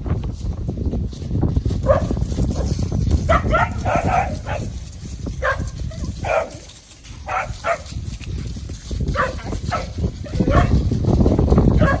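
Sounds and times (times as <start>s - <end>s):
puppies barking: 1.8s - 8.1s, 9.0s - 10.9s, 11.7s - 12.0s.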